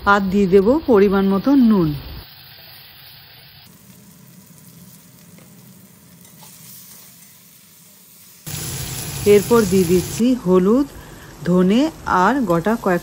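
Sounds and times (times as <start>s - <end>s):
food sizzling in hot oil: 0.3s - 10.8s
metal spatula stirring a pan: 6.2s - 7.5s.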